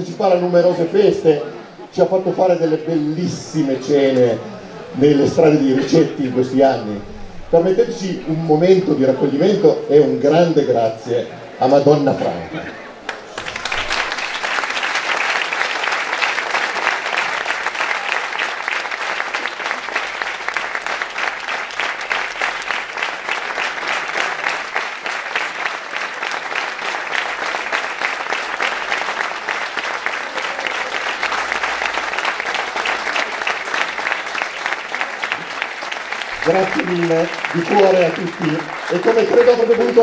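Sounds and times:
crowd applauding: 12.8 - 40.0.

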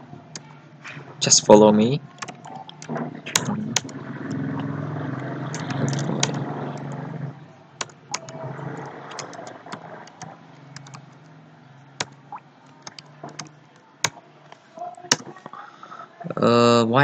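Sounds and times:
low steady hum: 0.0 - 17.0
keyboard keys clicking: 2.1 - 4.0, 5.5 - 7.0, 7.8 - 11.3, 12.0 - 14.2, 15.0 - 15.4.

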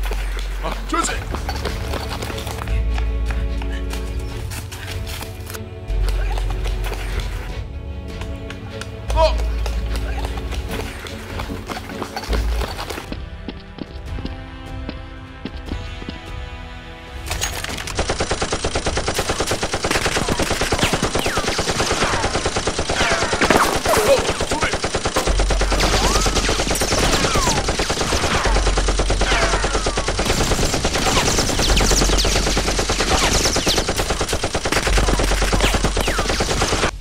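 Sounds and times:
rapid automatic gunfire: 17.7 - 37.0.

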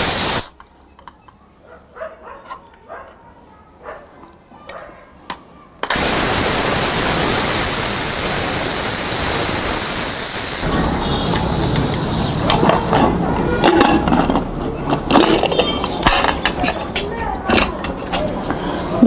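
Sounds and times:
pressure cooker steam hissing: 0.0 - 0.5, 5.8 - 13.0.

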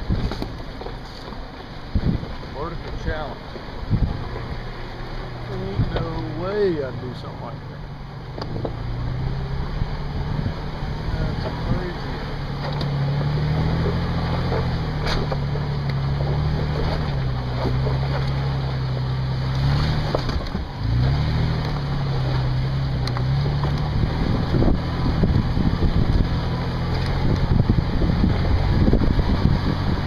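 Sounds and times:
vehicle knocks and rattles on rocks: 0.0 - 4.5, 8.4 - 8.8, 12.5 - 30.0
off-road vehicle engine: 0.0 - 30.0.

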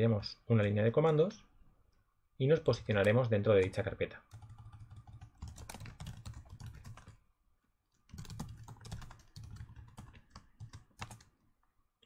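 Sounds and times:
computer keyboard typing: 2.7 - 7.2, 8.1 - 11.3.

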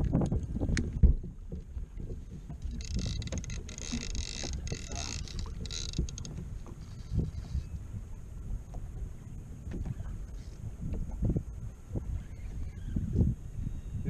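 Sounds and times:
water noise: 0.0 - 14.0
wind: 0.0 - 14.0
fishing reel whirring: 2.6 - 6.3.

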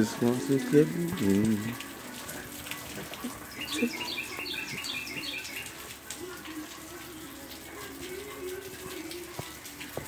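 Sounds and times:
bird chirping: 3.5 - 5.8.

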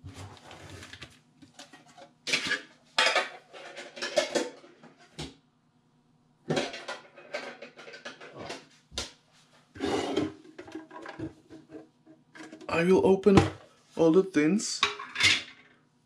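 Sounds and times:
metal tins clattering on desk: 2.3 - 4.8, 6.5 - 8.6.

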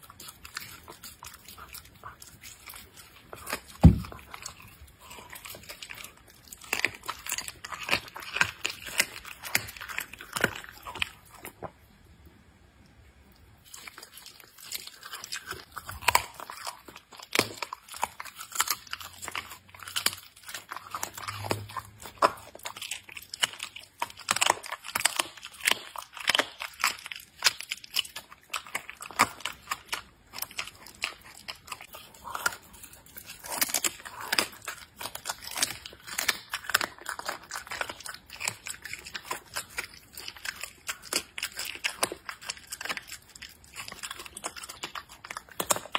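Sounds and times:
animal chewing raw meat: 0.0 - 11.7, 13.6 - 45.9.

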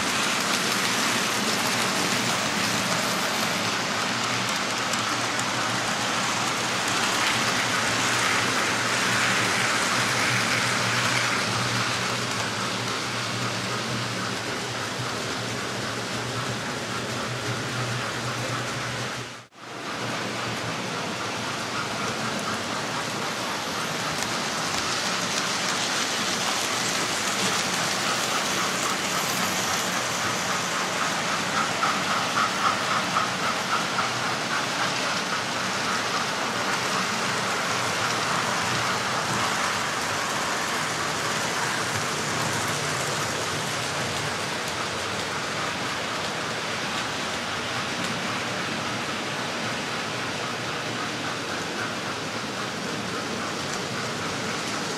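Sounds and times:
model trains whirring on rails: 0.0 - 54.9.

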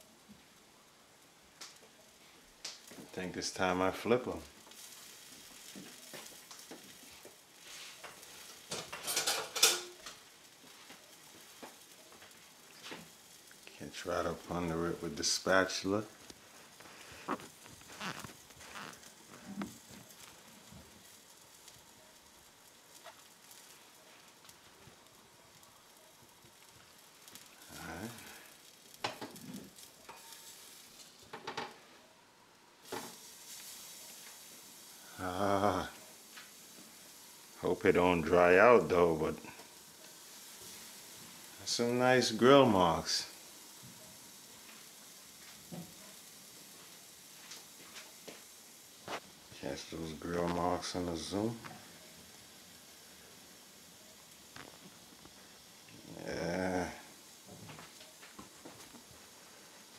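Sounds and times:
fish sizzling on a grill: 0.0 - 59.9.

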